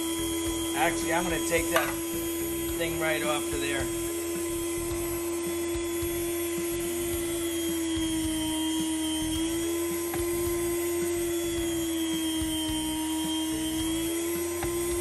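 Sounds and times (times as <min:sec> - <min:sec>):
meat slicer motor humming: 0:00.0 - 0:15.0.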